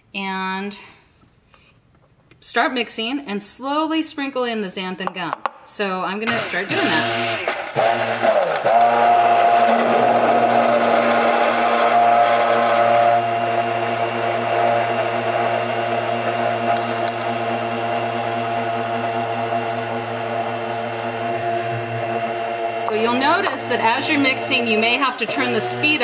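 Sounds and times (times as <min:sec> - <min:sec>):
stick blender motor whining: 0:06.3 - 0:26.0.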